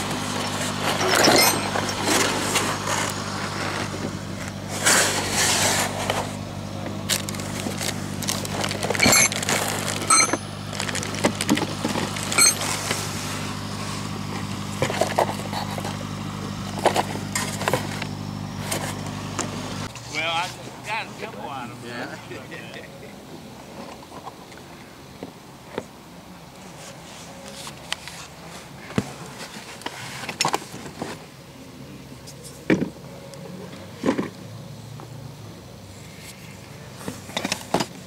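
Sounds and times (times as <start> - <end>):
scrapes: 0.0 - 19.2, 26.6 - 31.2
low motor hum: 0.0 - 29.7.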